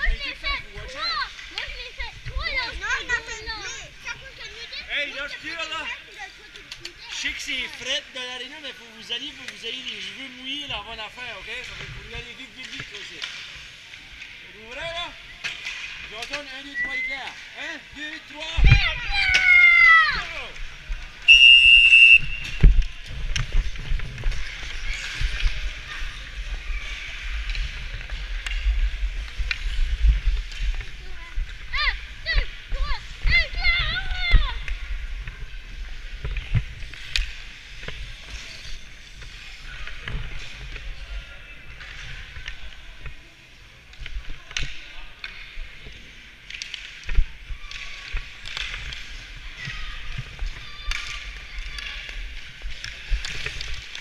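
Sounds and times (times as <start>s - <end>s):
hockey sticks and puck clicks: 6.5s - 7.9s, 9.2s - 14.4s, 15.4s - 17.5s, 18.2s - 54.0s
whistle blast: 21.3s - 22.6s.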